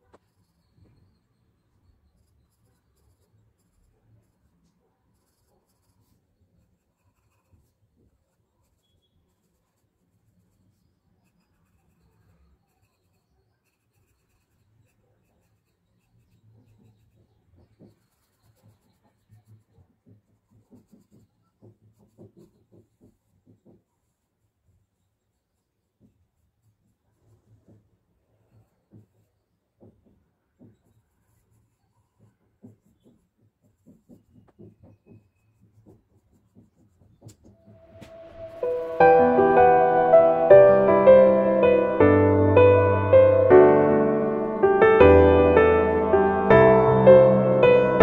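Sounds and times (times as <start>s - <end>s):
pencil scratching on paper: 0.0s - 37.6s.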